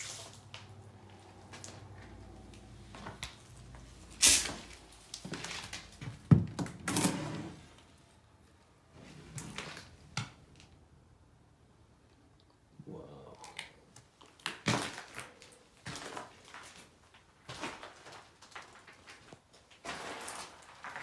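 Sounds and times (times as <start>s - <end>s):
rustling: 14.8s - 21.0s.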